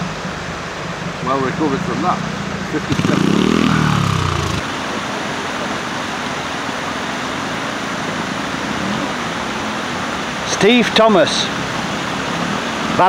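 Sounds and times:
stream rushing over rocks: 0.0s - 13.0s
motorcycle engine: 1.4s - 4.7s.

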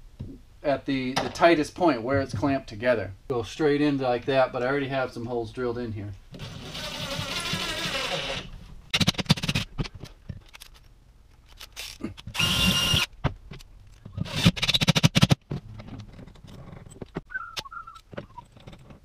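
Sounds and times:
cordless drill driving screws: 6.4s - 8.5s, 11.8s - 13.1s, 14.2s - 15.3s.

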